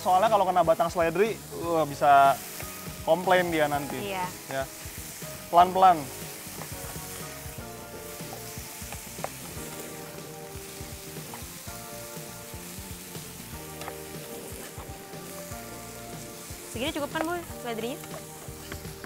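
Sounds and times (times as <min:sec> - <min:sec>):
mushrooms sizzling in a pan: 0:00.0 - 0:19.0.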